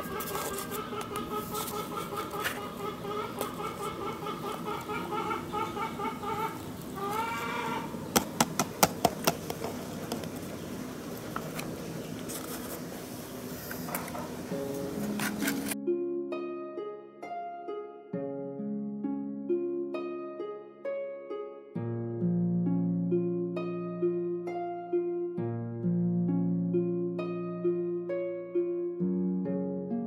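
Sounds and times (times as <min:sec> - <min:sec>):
pulsing animal call: 0:00.0 - 0:08.0
plastic tub tapping cup: 0:08.1 - 0:10.4.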